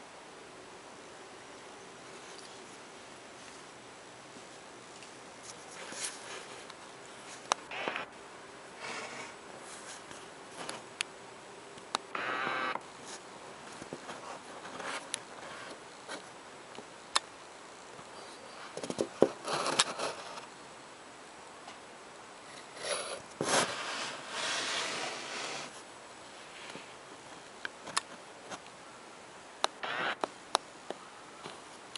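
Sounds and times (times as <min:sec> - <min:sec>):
rustling and scraping: 0:04.4 - 0:08.0, 0:08.8 - 0:10.9, 0:13.0 - 0:16.3, 0:18.1 - 0:20.5, 0:22.5 - 0:28.6.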